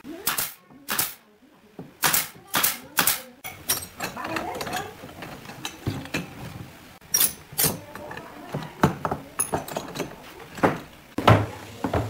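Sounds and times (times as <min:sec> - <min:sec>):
wooden knocks and clacks: 0:07.6 - 0:12.0.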